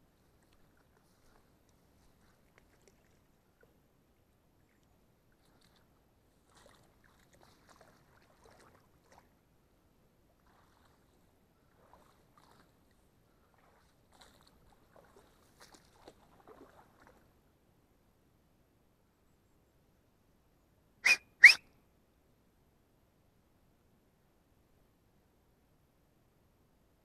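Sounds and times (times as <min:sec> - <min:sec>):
footsteps through wet grass: 0:00.0 - 0:03.4, 0:05.3 - 0:09.3, 0:10.3 - 0:17.2.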